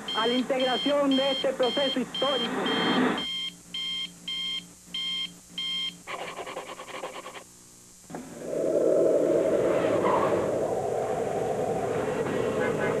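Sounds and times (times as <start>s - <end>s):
electronic beeping: 0.1s - 5.9s
loud steady low noise: 7.8s - 13.0s.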